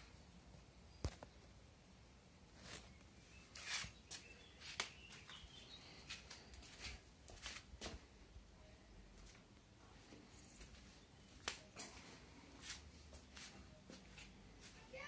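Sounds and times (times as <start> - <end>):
faint bird chirps: 2.8 - 6.6
footsteps scuffing on brick paving: 3.5 - 8.1.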